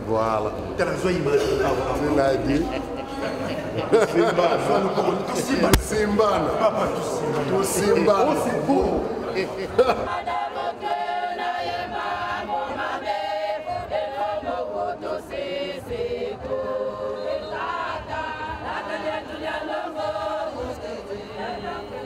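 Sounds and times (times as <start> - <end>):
choir singing: 9.3 - 22.0.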